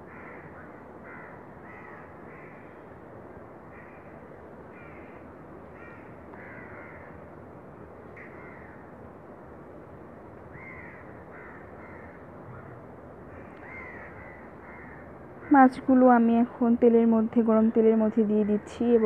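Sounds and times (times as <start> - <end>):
crows cawing: 0.0 - 2.8, 3.7 - 4.1, 4.7 - 7.2, 8.2 - 8.9, 10.5 - 15.7.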